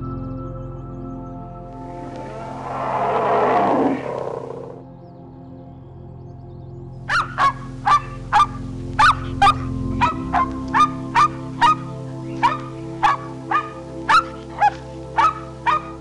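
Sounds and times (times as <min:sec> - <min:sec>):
background music with drone: 0:00.0 - 0:16.0
small dog barking: 0:07.1 - 0:11.8, 0:12.4 - 0:16.0.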